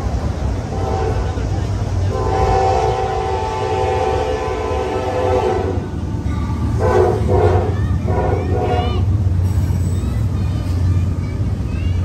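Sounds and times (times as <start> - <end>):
freight train rumbling past: 0.0 - 12.0
locomotive air horn: 0.7 - 1.2, 2.1 - 5.8, 6.8 - 9.0.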